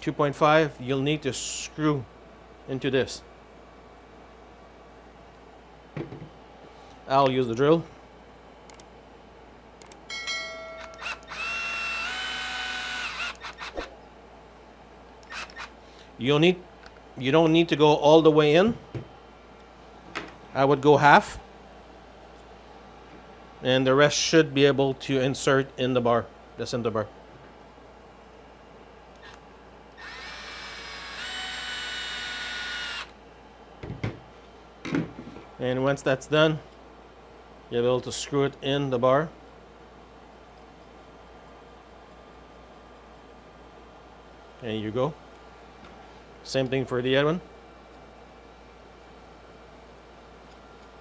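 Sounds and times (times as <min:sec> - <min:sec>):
drill click: 0:10.8 - 0:13.9
cordless drill whining: 0:10.9 - 0:13.9, 0:15.2 - 0:15.7, 0:30.0 - 0:33.1.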